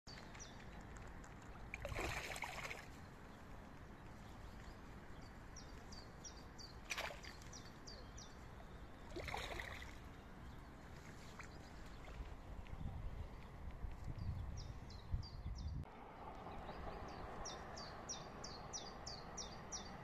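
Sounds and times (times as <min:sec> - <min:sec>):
fish splashing and thrashing: 0:00.2 - 0:03.0, 0:09.1 - 0:10.0
steady outdoor hiss: 0:00.2 - 0:14.1.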